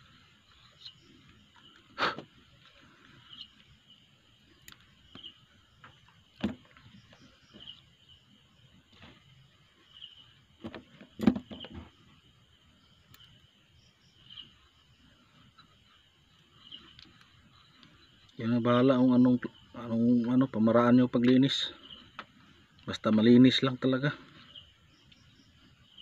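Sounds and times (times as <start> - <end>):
cricket chirping: 0.0 - 26.0.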